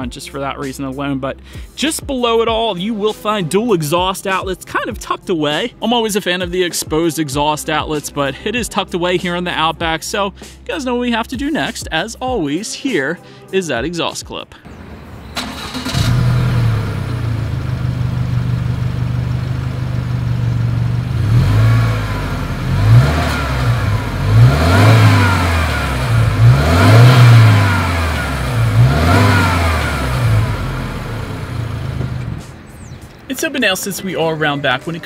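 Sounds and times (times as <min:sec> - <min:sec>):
car engine idling and revving: 0:14.7 - 0:33.3.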